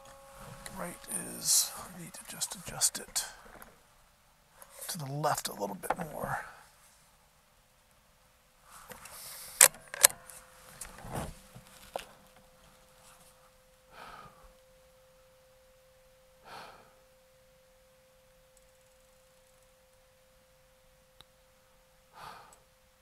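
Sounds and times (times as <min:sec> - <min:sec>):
rustling: 0:00.0 - 0:07.3, 0:08.6 - 0:14.7
person breathing out: 0:13.9 - 0:14.4, 0:16.4 - 0:17.0, 0:22.2 - 0:22.6.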